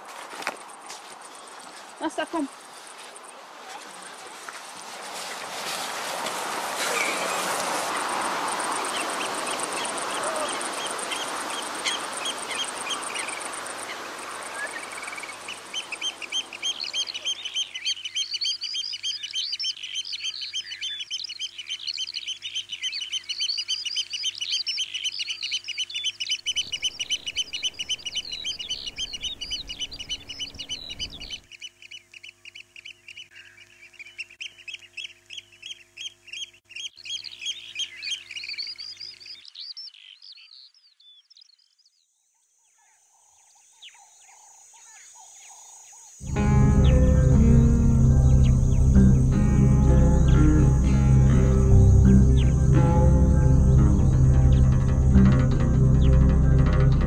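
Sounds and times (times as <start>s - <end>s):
birds chirping rapidly: 7.0s - 41.8s
low rumble: 46.2s - 57.0s.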